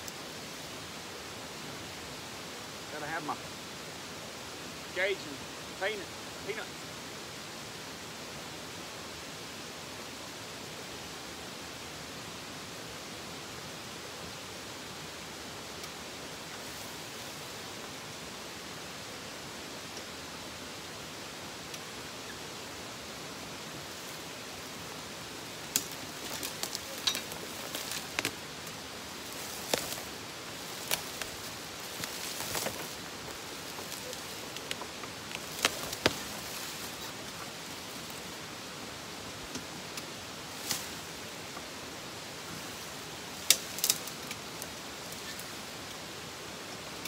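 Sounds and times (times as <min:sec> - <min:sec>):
steady hiss: 0:00.0 - 0:47.0
leaves and sticks crunching under tyres: 0:23.8 - 0:38.7, 0:39.4 - 0:41.7, 0:42.4 - 0:46.0.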